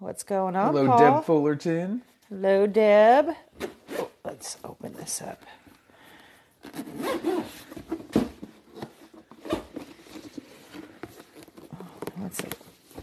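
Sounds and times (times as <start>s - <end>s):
zipper being pulled open: 3.8s - 4.2s, 6.6s - 7.6s.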